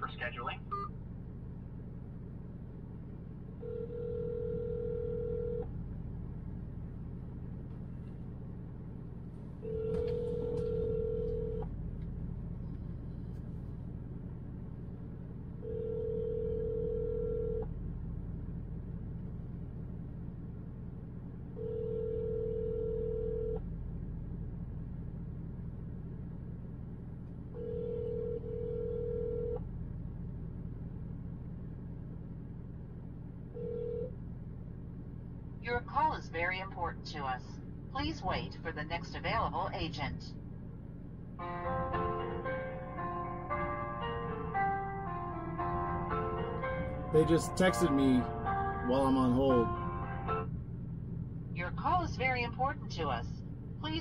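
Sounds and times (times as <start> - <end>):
telephone ringback tone: 3.6 - 5.6, 9.7 - 11.6, 15.7 - 17.6, 21.6 - 23.6, 27.6 - 29.6.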